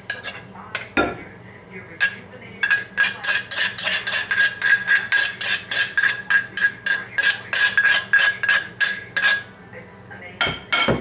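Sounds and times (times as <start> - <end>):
metal spoon clinking in mortar: 0.1 - 0.9, 2.0 - 9.4.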